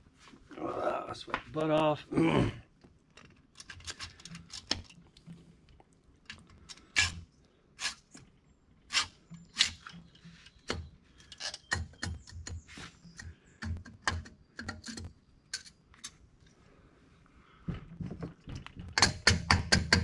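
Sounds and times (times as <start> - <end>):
sharp metal knocks: 18.5 - 20.0.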